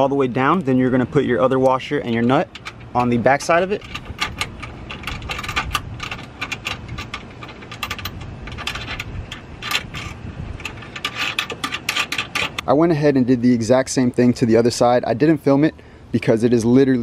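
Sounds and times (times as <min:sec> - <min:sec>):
metal washer and nut clinking: 0:01.6 - 0:12.7.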